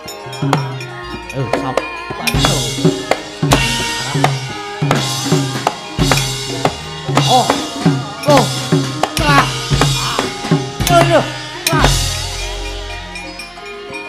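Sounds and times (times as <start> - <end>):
deep booming gong stroke: 2.3 - 13.3
fast loud hand drum strokes: 2.4 - 12.7.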